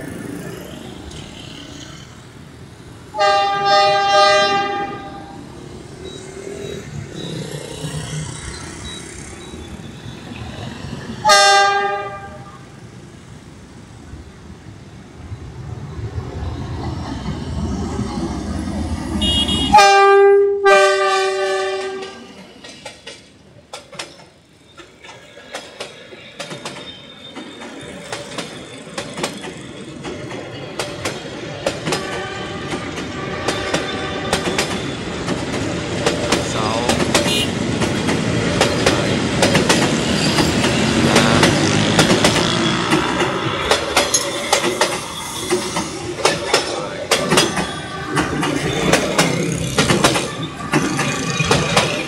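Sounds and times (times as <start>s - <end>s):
train horn blast: 3.1s - 5.4s, 11.2s - 12.6s, 19.2s - 22.4s, 31.9s - 34.6s, 37.2s - 37.6s
train wheels clacking on rail joints: 21.4s - 52.0s
locomotive engine rumble: 32.8s - 52.0s.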